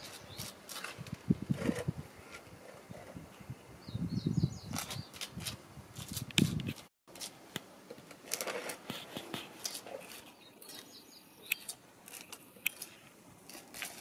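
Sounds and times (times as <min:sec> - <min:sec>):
plastic spatula scraping concrete: 0:08.2 - 0:10.8.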